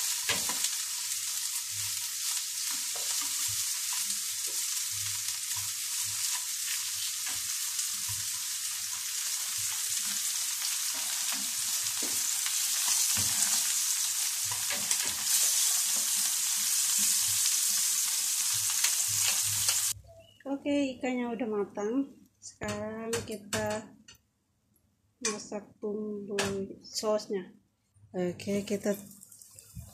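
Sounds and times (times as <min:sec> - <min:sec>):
fish sizzling in hot oil: 0:00.0 - 0:20.0.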